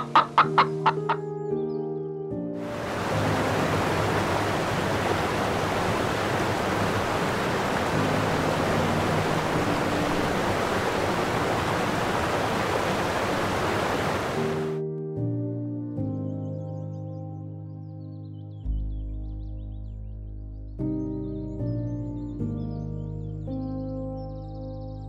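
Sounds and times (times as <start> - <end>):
soft background music: 0.0 - 25.0
steady rushing noise: 2.7 - 14.7.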